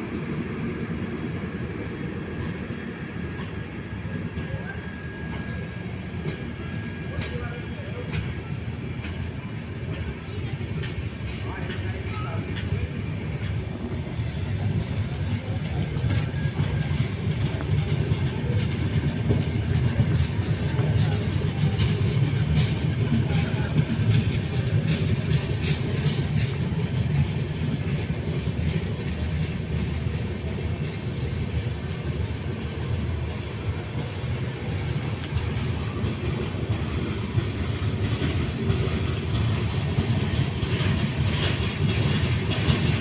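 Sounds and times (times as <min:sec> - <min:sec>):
train wheels rumbling on rails: 0:00.0 - 0:43.0
wheels clacking over rail joints: 0:02.0 - 0:43.0.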